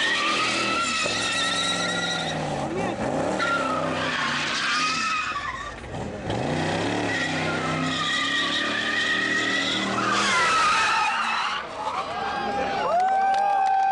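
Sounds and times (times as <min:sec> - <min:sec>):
tyres squealing: 0:00.0 - 0:12.8
car engine revving hard: 0:05.8 - 0:10.6.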